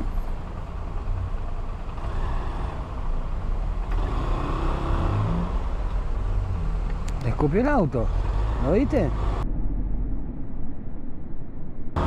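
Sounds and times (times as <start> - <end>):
car engines idling: 0.0 - 9.4
street noise: 0.0 - 12.0.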